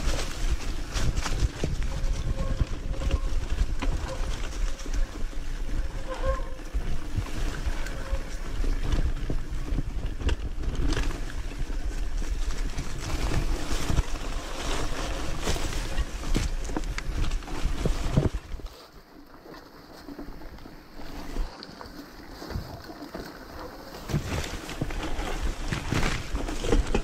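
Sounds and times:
wind buffeting microphone: 0.0 - 18.7.

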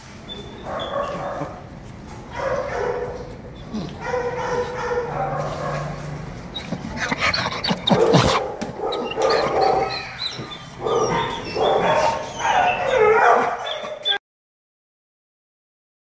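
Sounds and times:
dog whining and yelping: 6.5 - 14.2.

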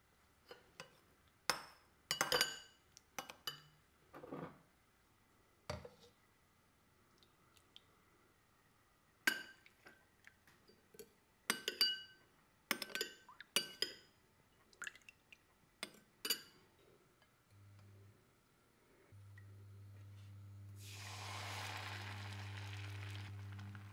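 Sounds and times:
spoon clinking in glass bowl: 1.5 - 3.7, 11.5 - 14.1.

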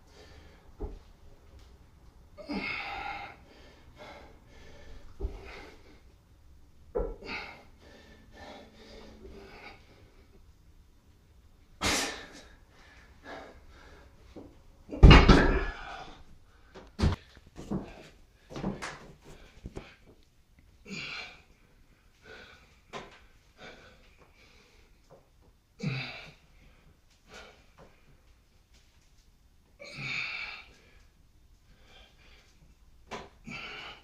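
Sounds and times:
man breathing hard: 0.1 - 1.0, 2.4 - 6.2, 7.0 - 10.4, 11.9 - 14.5, 15.6 - 20.2, 20.8 - 25.2, 29.9 - 32.8, 33.4 - 34.0.

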